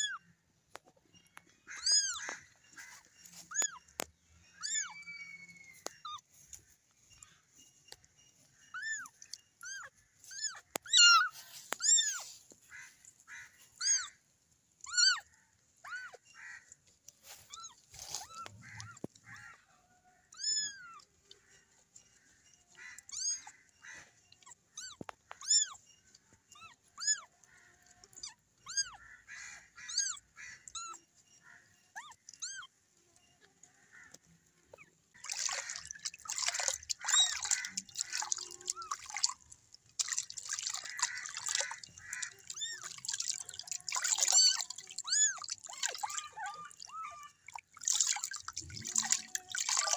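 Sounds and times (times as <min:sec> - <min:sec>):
water splashing in basin: 0:35.1 - 0:49.9.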